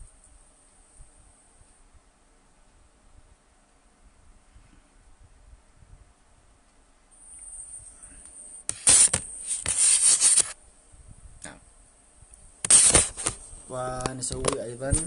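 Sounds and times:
faint hiss: 0.0s - 15.0s
short brush: 8.7s - 10.6s, 12.6s - 13.5s
phone handling rustle: 12.6s - 13.4s.

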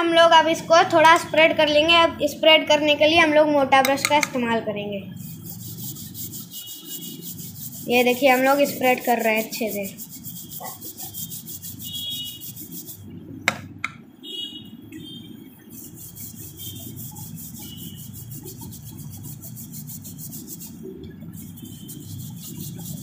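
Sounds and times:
paintbrush scrubbing paper: 5.1s - 13.1s, 15.6s - 23.0s.

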